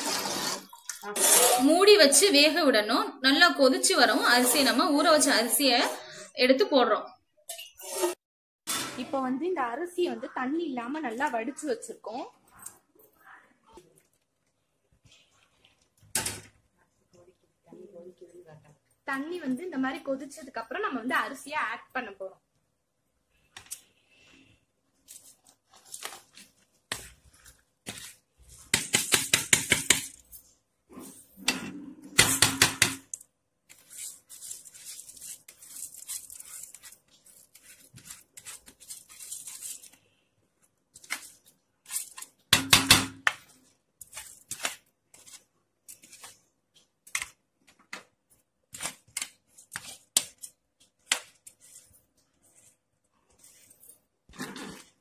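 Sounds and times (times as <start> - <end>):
rice scraped into a pot: 0.0 - 1.7, 7.8 - 8.8, 25.1 - 29.0, 33.7 - 40.0, 51.2 - 55.0.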